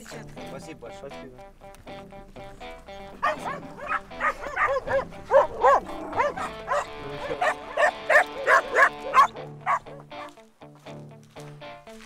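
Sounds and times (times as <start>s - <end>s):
faint music: 0.0s - 12.0s
dog barking: 3.2s - 10.3s.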